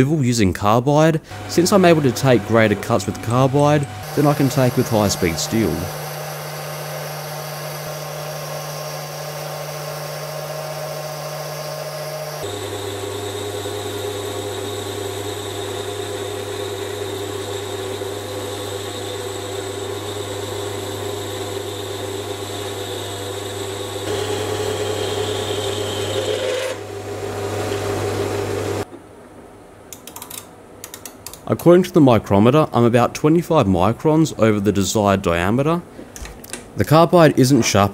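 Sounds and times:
metal lathe running: 0:01.3 - 0:26.8.

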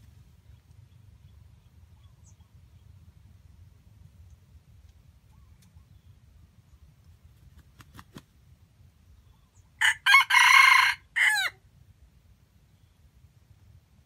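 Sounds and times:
rooster crowing: 0:09.8 - 0:11.6.

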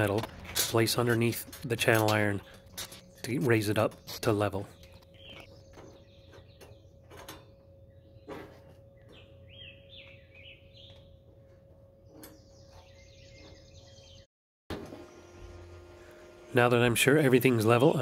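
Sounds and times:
bird chirping: 0:02.3 - 0:14.3.

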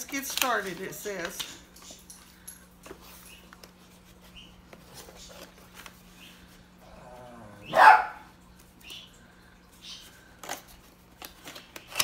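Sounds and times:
faint steady hum: 0:00.0 - 0:12.0
cardboard packaging rustling: 0:02.8 - 0:06.7.

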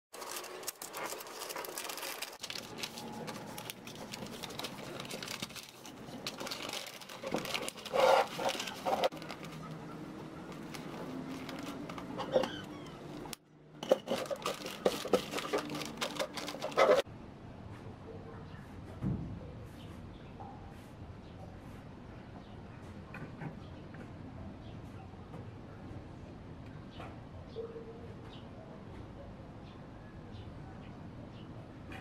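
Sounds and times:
wrapping paper rustling: 0:00.1 - 0:17.0.

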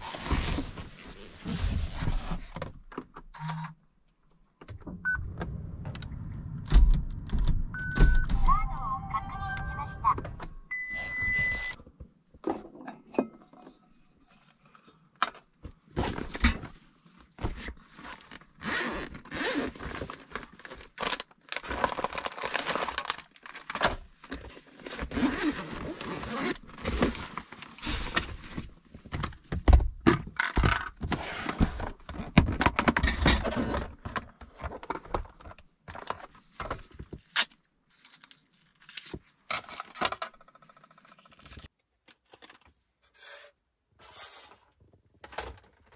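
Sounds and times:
plastic boxes scraping and knocking: 0:12.4 - 0:37.3.

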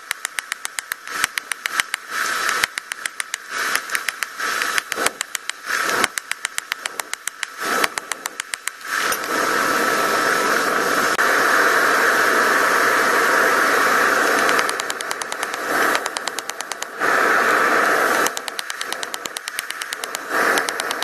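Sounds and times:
air hammer pounding steel: 0:00.0 - 0:09.4, 0:18.0 - 0:21.0.

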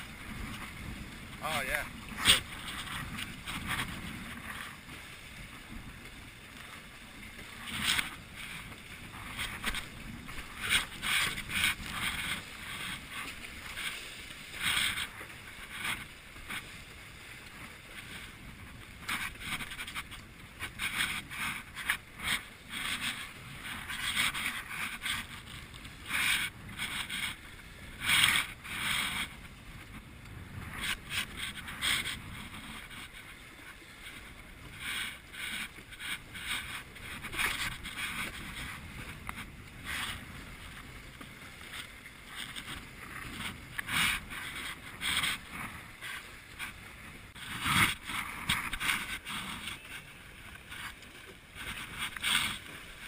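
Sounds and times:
rushing water and wind: 0:00.0 - 0:53.0
waves slapping against hull: 0:00.0 - 0:53.0.

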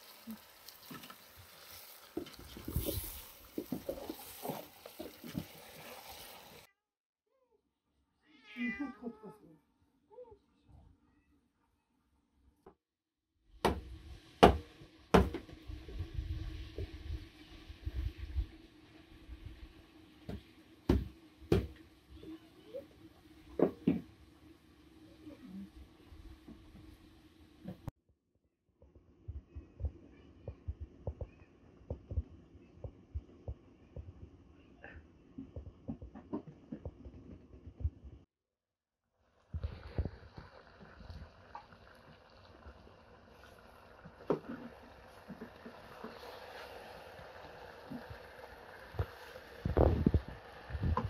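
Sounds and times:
light sizzle: 0:00.0 - 0:06.7, 0:13.5 - 0:27.9, 0:39.2 - 0:51.0.

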